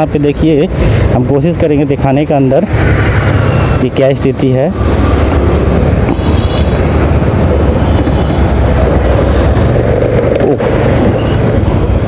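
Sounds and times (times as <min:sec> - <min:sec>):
low rumble of road traffic: 0:00.0 - 0:12.0
wind buffeting microphone: 0:02.6 - 0:12.0.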